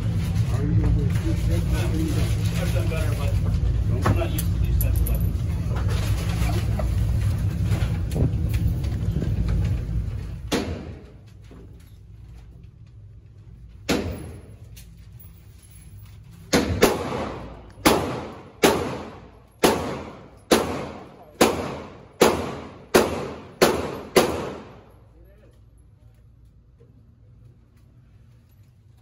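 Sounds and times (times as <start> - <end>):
steady low rumble: 0.0 - 29.0
handgun shots with echo: 10.5 - 11.1, 13.8 - 14.6, 16.5 - 24.9.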